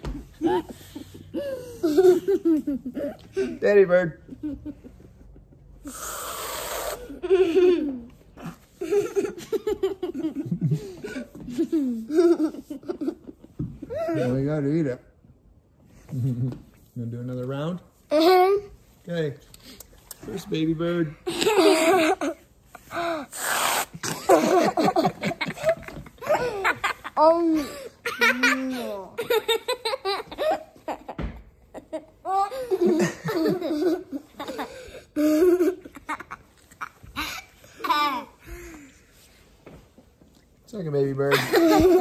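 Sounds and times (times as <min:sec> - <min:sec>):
people laughing: 0:24.1 - 0:31.2, 0:32.5 - 0:36.4.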